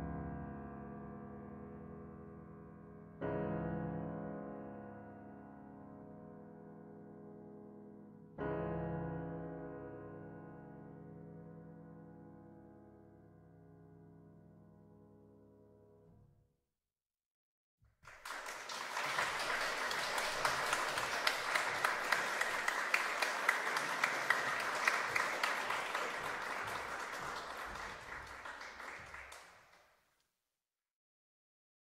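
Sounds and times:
audience applauding: 18.0 - 29.9.

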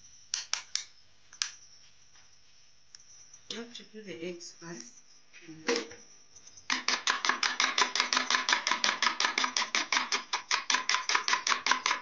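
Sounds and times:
spoon beating eggs in bowl: 6.7 - 12.0.

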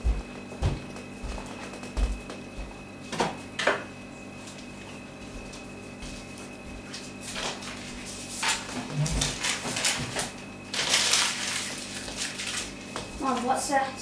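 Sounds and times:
knocks and scuffs: 0.0 - 2.8
electrical hum: 0.0 - 14.0.

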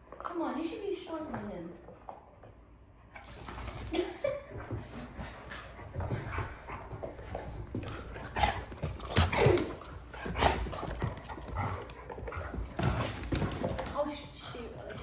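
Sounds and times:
dogs growling while playing: 5.0 - 15.0.

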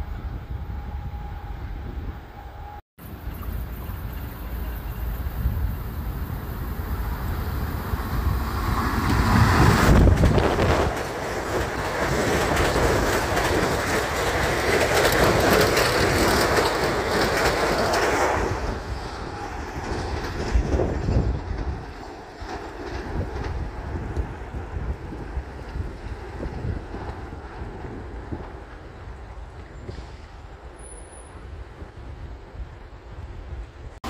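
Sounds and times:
train going by: 0.0 - 34.0.

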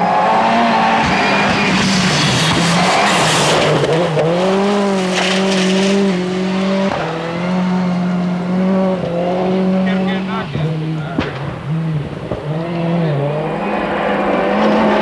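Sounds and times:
rally car engine running hard: 0.0 - 15.0
stones and tyres hissing on gravel: 4.5 - 7.0.

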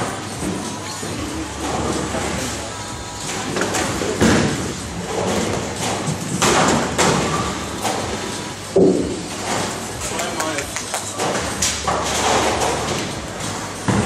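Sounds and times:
bowling hall din: 0.0 - 14.0
bowling pins clattering: 3.2 - 14.0
bowling ball impact: 3.3 - 10.0, 10.8 - 14.0.

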